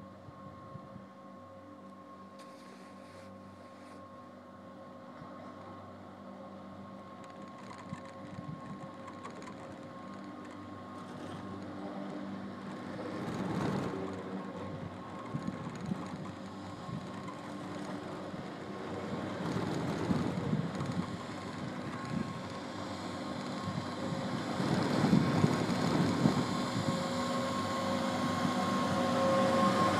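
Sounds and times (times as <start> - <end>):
machinery hum: 0.0 - 29.9
chairlift rope rumbling and clacking: 7.2 - 29.9.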